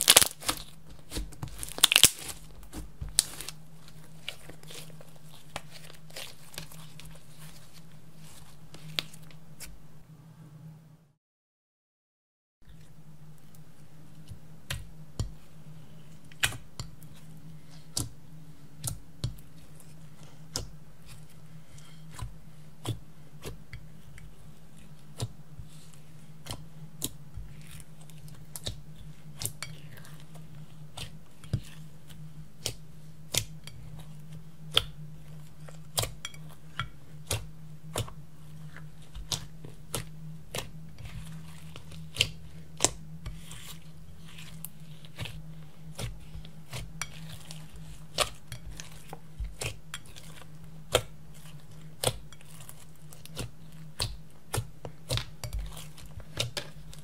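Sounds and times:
slime squished by hand: 0.0s - 3.6s
low hum: 0.0s - 11.2s.

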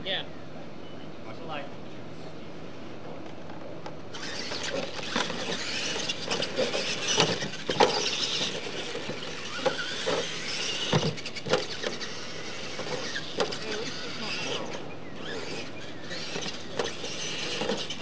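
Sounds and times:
electric motor whine: 4.1s - 18.0s.

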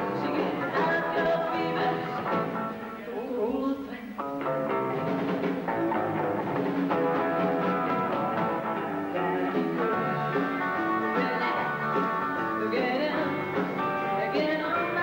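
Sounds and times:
drum kit: 0.0s - 3.1s, 4.2s - 15.0s
woman singing into microphone: 0.0s - 4.2s, 11.0s - 15.0s
electric guitars: 0.0s - 15.0s.

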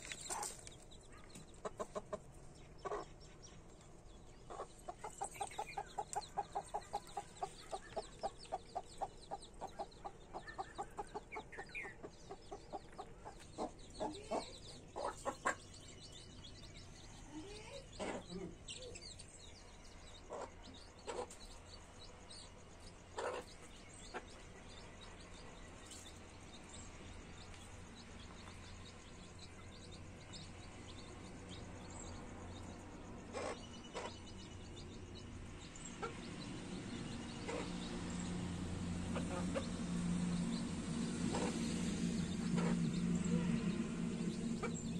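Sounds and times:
hen clucking: 0.0s - 3.2s, 4.5s - 15.9s, 33.3s - 34.4s, 37.4s - 38.0s, 39.0s - 40.0s
chicks peeping: 0.0s - 44.9s.

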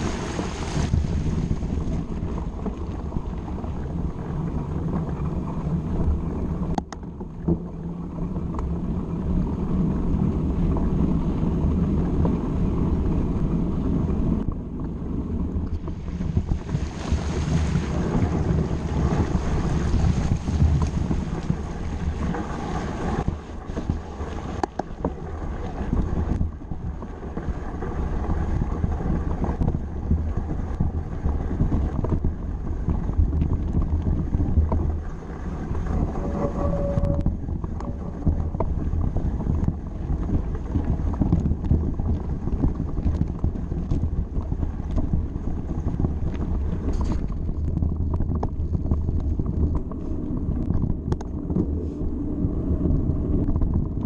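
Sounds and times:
tyre rumble on stony track: 0.0s - 54.0s
wind buffeting microphone: 0.0s - 54.0s
bike clicks and rattles: 46.2s - 51.7s.

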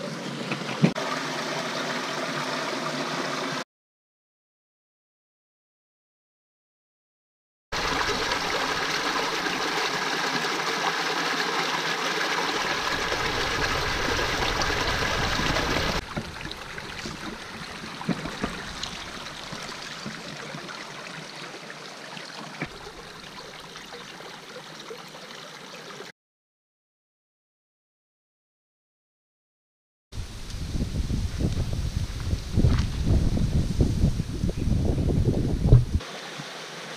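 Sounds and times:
stream running over rocks: 0.7s - 3.6s, 7.8s - 26.1s, 36.0s - 36.9s.

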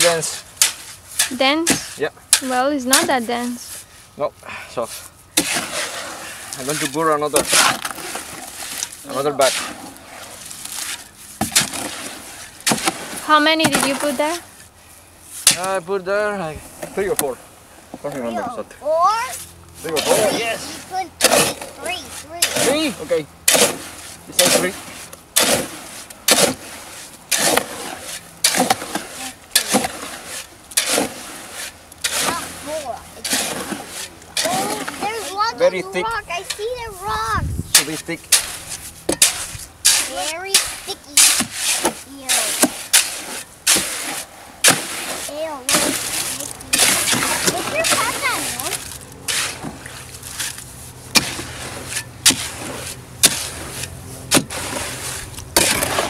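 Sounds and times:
shovel scraping wet concrete: 0.0s - 4.0s, 4.8s - 14.6s, 15.2s - 16.0s, 18.1s - 56.0s
steady low hum: 0.0s - 56.0s.

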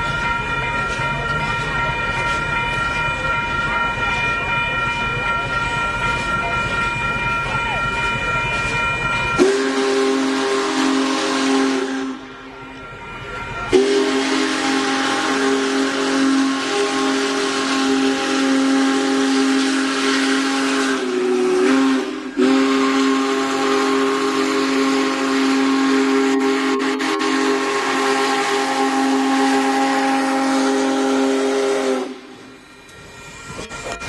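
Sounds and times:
steam locomotive whistle: 0.0s - 34.0s
steam hiss: 13.7s - 34.0s.

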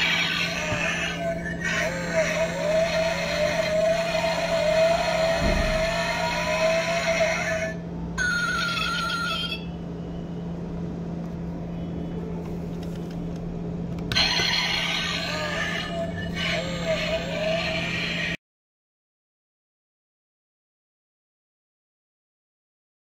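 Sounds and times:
toy engine sound from speaker: 0.0s - 9.8s, 14.1s - 18.4s
low steady hum: 0.0s - 18.4s.

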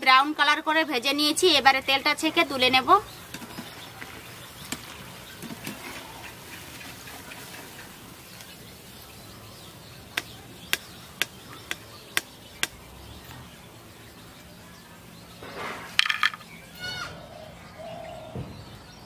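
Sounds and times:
frying oil sizzling: 1.2s - 11.4s.

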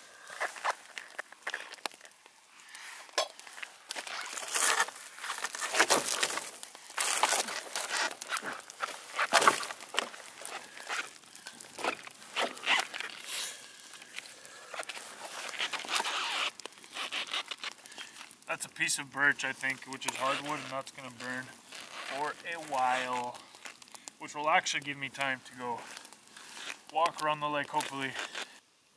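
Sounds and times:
wood crunching and snapping in fire: 0.0s - 28.9s
boots shifting on boughs and snow: 4.0s - 13.6s.

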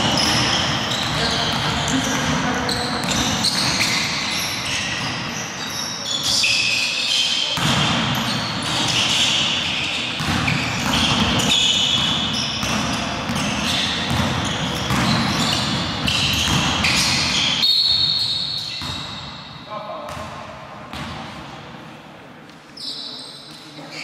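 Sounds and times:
shoe squeaks on hardwood: 0.0s - 7.6s, 8.2s - 19.3s, 22.8s - 24.0s
players' voices: 0.0s - 17.5s
basketball bouncing: 7.6s - 9.1s, 10.2s - 17.5s.

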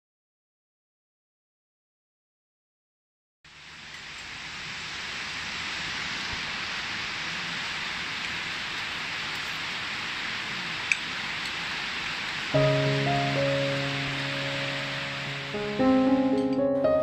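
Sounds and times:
rain falling on foliage: 3.5s - 16.3s.

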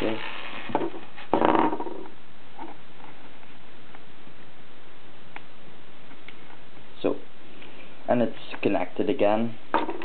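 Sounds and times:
steady hiss: 0.0s - 1.6s.

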